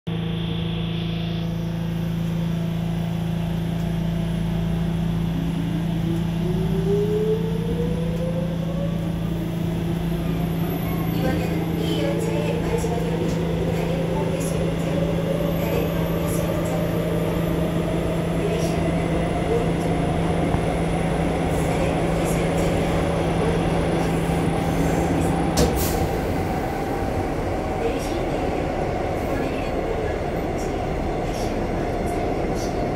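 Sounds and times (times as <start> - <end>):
train hum and rumble: 0.1 - 32.9.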